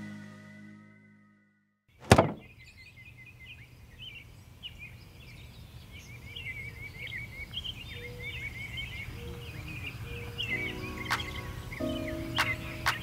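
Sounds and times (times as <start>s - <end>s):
small birds chirping: 2.2s - 13.0s.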